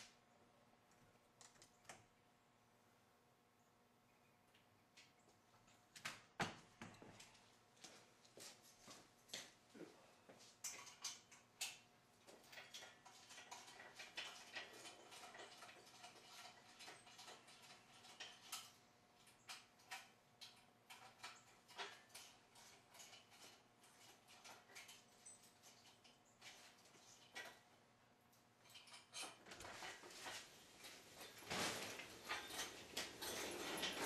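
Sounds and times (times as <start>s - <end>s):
hoist chain clinking: 12.4s - 26.2s, 31.2s - 34.0s.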